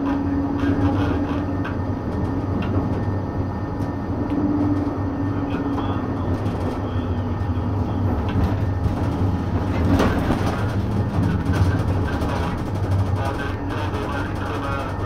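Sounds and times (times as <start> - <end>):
tram motor hum and rumble: 0.0 - 15.0
wheels clicking over rails: 8.1 - 15.0.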